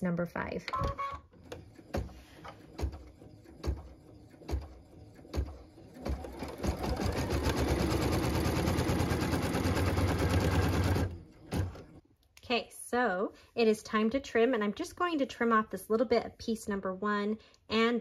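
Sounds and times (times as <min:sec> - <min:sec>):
embroidery machine stitching: 0:01.3 - 0:11.9.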